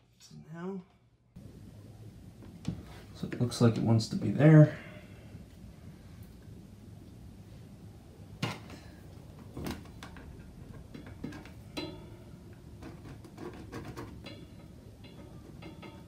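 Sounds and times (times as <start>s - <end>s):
metal gate hardware clinking: 10.2s - 12.3s, 14.2s - 16.0s.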